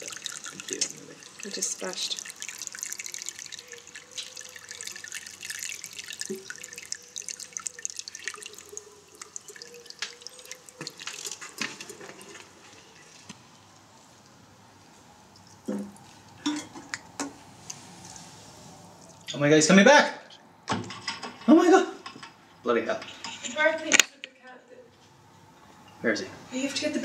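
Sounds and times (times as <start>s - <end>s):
water dripping on wet paving: 0.0s - 13.9s.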